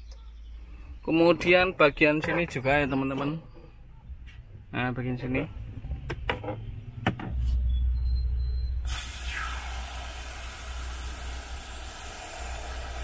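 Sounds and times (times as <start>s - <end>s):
aerosol spray hissing: 8.9s - 13.0s.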